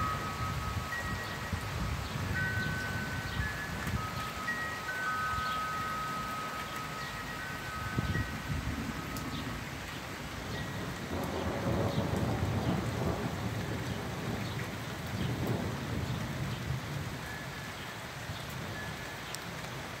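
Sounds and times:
steady rain falling: 0.0s - 20.0s
low roll of thunder: 10.6s - 17.1s.

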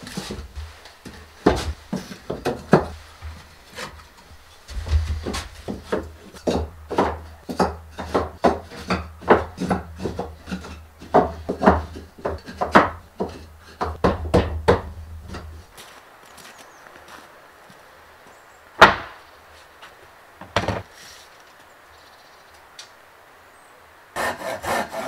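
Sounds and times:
wooden boards knocking together: 0.0s - 4.1s, 4.7s - 15.7s, 18.8s - 19.2s, 20.4s - 20.9s.

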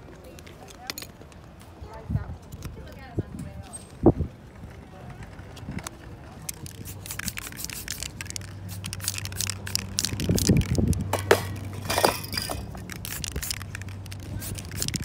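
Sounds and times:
fingertips scratching wet paint: 6.7s - 10.9s, 12.8s - 15.0s.

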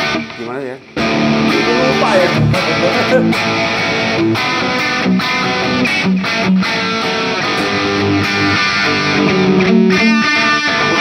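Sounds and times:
electric guitar lead with delay: 0.0s - 11.0s.

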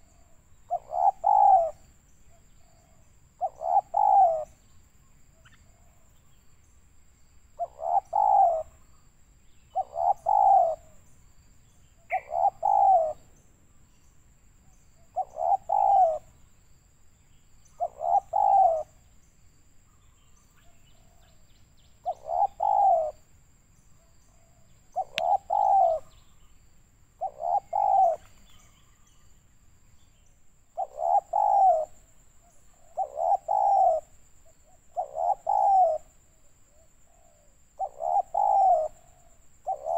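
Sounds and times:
dove cooing: 0.0s - 1.9s, 2.6s - 4.6s, 7.6s - 8.8s, 9.7s - 11.0s, 12.1s - 13.3s, 15.1s - 16.4s, 17.8s - 19.0s, 22.0s - 23.2s, 24.3s - 26.3s, 27.2s - 29.1s, 30.8s - 39.9s.

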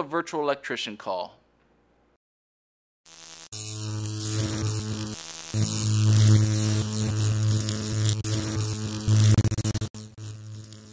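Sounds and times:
crackling static: 3.1s - 10.9s
electrical hum and buzz: 3.1s - 10.9s.

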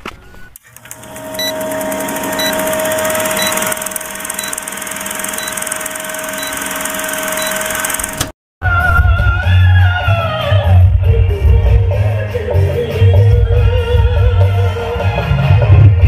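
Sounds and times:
film projector whirring: 0.6s - 8.4s.

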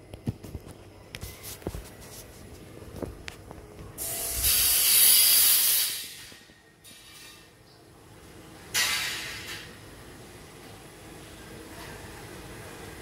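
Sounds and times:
loud hissing rush: 4.0s - 6.2s.

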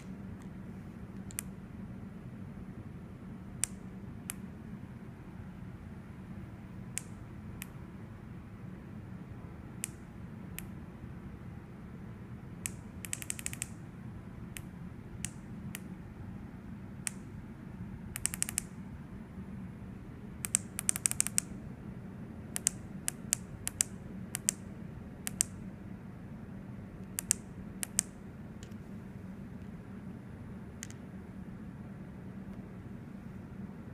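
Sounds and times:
steady low hum: 0.0s - 33.9s
small push buttons clicking: 1.2s - 1.5s, 12.6s - 13.8s, 18.2s - 18.7s, 20.4s - 21.5s, 22.6s - 24.6s, 25.3s - 25.6s, 27.0s - 28.8s.

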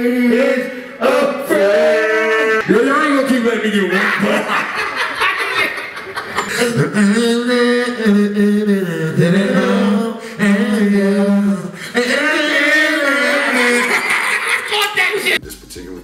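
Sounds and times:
man singing long held notes: 6.6s - 14.0s.

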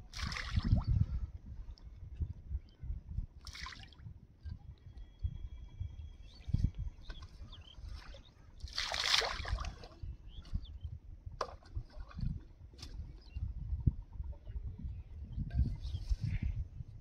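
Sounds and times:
faint bird chirps: 4.8s - 8.7s
water splashing: 8.7s - 9.9s.

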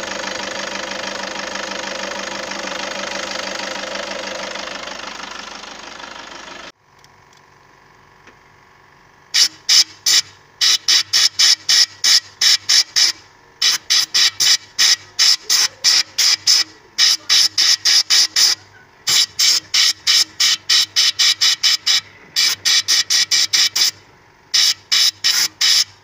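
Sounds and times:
diesel engine idling: 0.0s - 26.0s
oil can squeaking: 9.4s - 26.0s.

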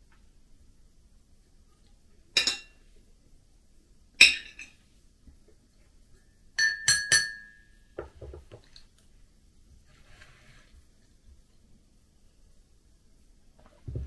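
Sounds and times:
cutlery clinking on a plate: 2.4s - 2.8s, 4.2s - 4.8s, 6.6s - 7.7s
spoon clinking on a mug: 6.6s - 7.7s.

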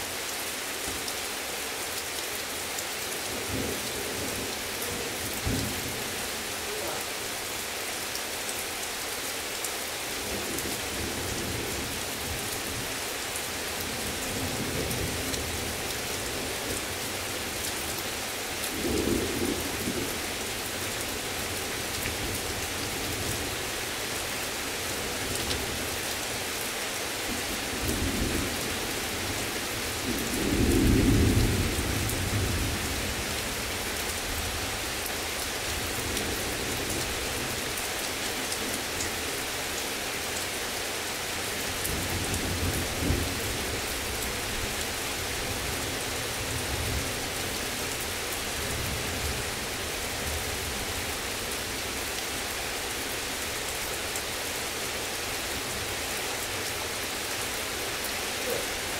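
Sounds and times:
heavy rain falling: 0.0s - 58.9s.

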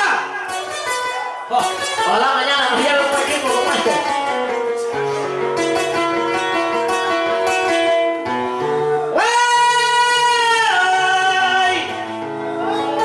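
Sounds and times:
guitars picking: 0.0s - 9.2s.

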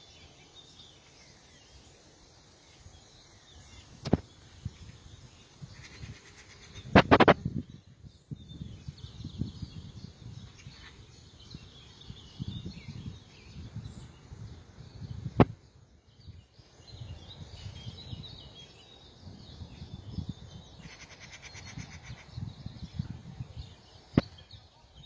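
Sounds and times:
small birds chirping: 0.0s - 25.0s
wind rumbling on microphone: 2.8s - 25.0s
rapid bird trill: 20.7s - 22.5s.

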